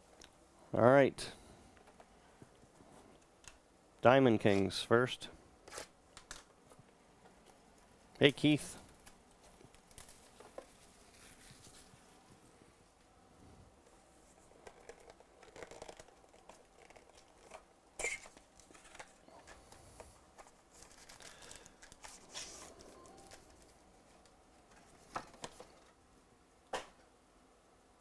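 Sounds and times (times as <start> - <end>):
crinkling and tearing of wrapping: 8.9 - 12.1, 14.6 - 19.2, 20.4 - 24.3.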